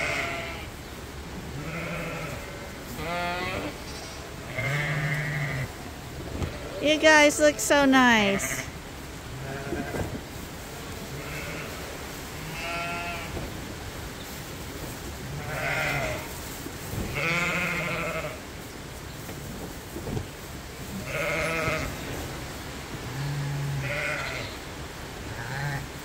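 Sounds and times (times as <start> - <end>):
sheep bleating: 0.0 - 0.6, 1.6 - 5.7, 8.2 - 8.7, 11.2 - 11.8, 12.4 - 13.3, 15.4 - 16.3, 21.0 - 21.9, 23.1 - 24.5, 25.3 - 25.9.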